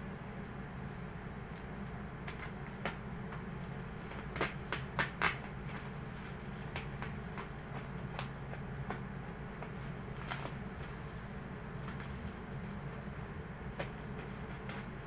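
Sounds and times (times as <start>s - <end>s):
steady low hum: 0.0s - 15.0s
plastic rustling: 4.0s - 13.0s.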